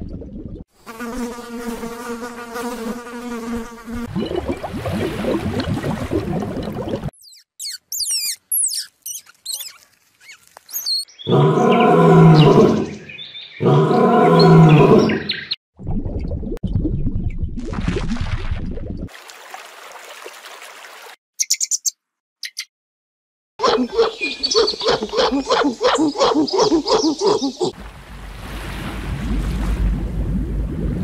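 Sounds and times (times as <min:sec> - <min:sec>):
fly buzzing: 0:00.8 - 0:04.1
squirrel chirps: 0:07.2 - 0:11.1, 0:21.4 - 0:22.7
rustling noise: 0:09.0 - 0:11.0
lion growls: 0:11.3 - 0:13.0, 0:13.6 - 0:15.2.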